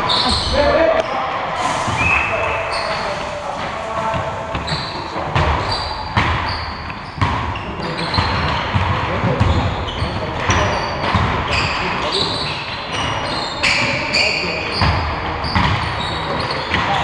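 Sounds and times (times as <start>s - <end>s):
sneaker squeaks: 0.0s - 17.0s
basketball bouncing on court: 4.1s - 17.0s.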